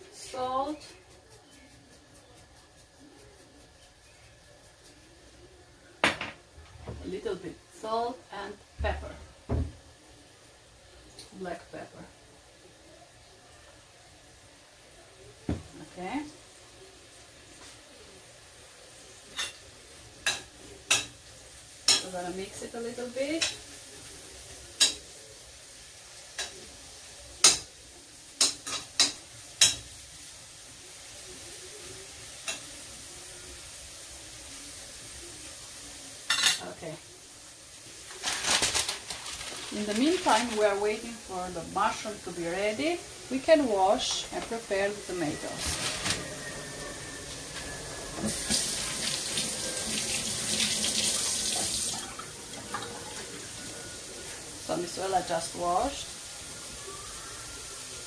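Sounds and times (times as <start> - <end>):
mushrooms sizzling in a pan: 0.0 - 58.0
kitchen faucet running: 46.4 - 58.0.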